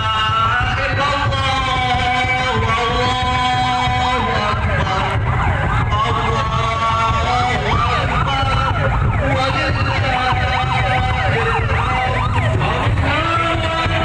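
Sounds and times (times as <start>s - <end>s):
sirens wailing: 0.0s - 14.0s.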